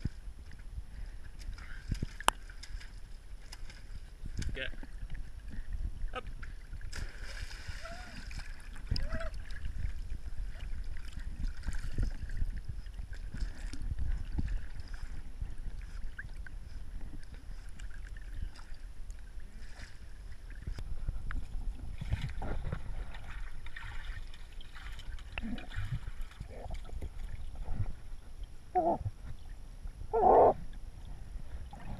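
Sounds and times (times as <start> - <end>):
pool water lapping and sloshing: 0.0 - 31.9
dogs paddling splashes: 6.4 - 18.8, 21.9 - 27.9.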